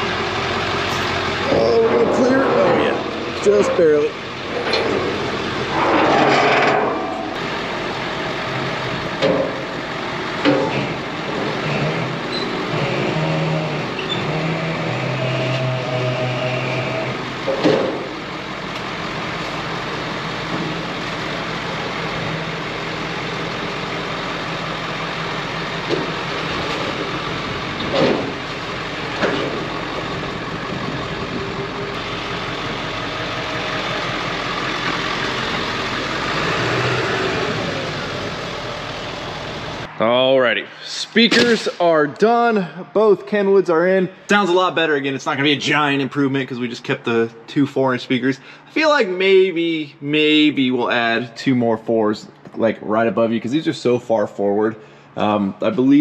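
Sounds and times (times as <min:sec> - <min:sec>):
pickup truck engine at low revs: 0:00.0 - 0:05.8, 0:07.2 - 0:39.9
sharp knocks and clanks: 0:00.9 - 0:07.6, 0:09.2 - 0:09.7, 0:10.4 - 0:11.0, 0:17.5 - 0:18.2, 0:27.8 - 0:28.4, 0:29.2 - 0:29.7.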